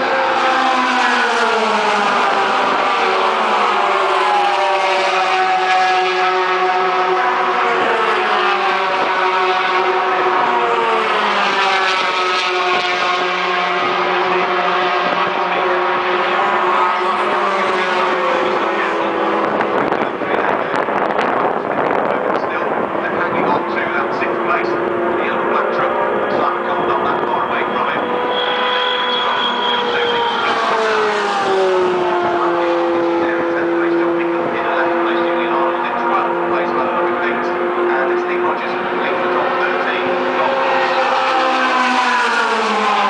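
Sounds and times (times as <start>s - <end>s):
truck engines at full throttle: 0.0s - 43.0s.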